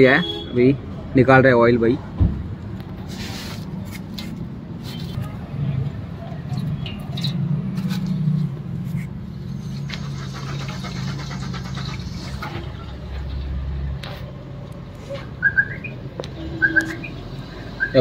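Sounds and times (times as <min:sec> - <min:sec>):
oil draining into metal drum: 0:06.5 - 0:08.1, 0:09.8 - 0:13.4.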